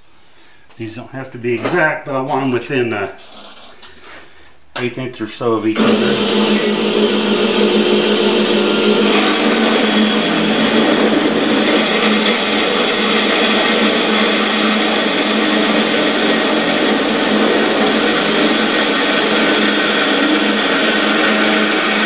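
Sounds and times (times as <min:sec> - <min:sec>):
band saw motor hum: 0:05.8 - 0:22.0
saw blade whining in metal: 0:05.8 - 0:22.0.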